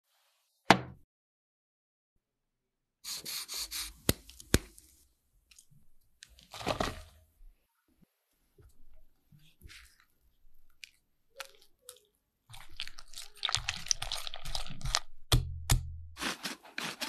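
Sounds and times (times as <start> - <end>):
cookie crackling and snapping: 10.7 - 15.2.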